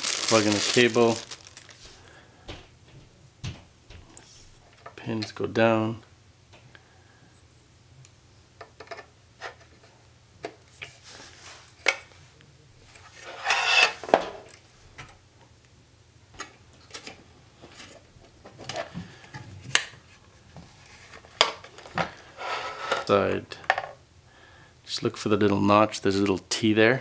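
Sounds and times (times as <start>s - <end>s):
scraping rub: 13.1s - 14.0s, 22.3s - 23.1s.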